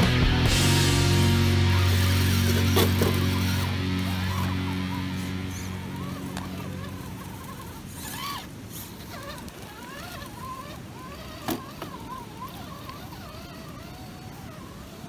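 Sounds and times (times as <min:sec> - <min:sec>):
guitar music: 0:00.0 - 0:08.0
electric motor whining: 0:00.0 - 0:15.0.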